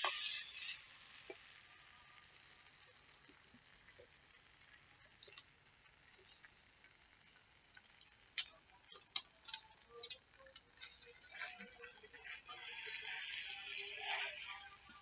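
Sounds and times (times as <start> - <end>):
metal spatula scraping a wok: 8.9 - 15.0.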